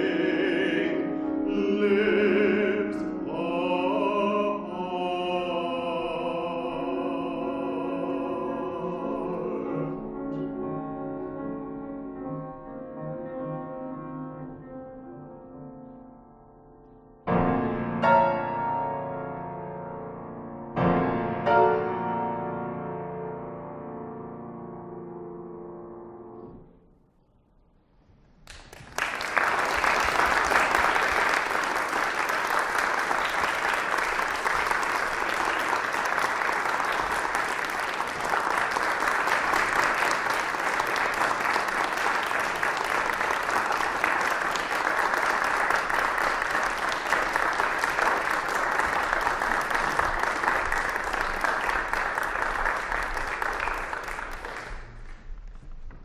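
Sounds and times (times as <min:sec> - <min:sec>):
audience applauding: 0:28.4 - 0:55.6.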